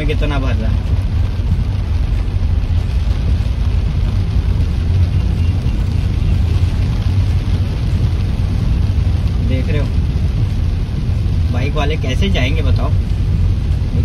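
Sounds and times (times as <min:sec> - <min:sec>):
car engine and tyres rumbling: 0:00.0 - 0:14.0
rain hissing: 0:00.0 - 0:14.0.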